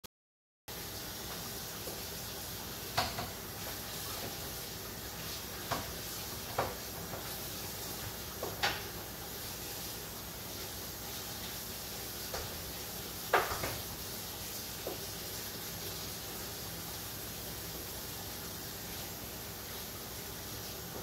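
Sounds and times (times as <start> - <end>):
steady hiss: 0.7 - 21.0
kitchenware knocking: 13.3 - 13.8.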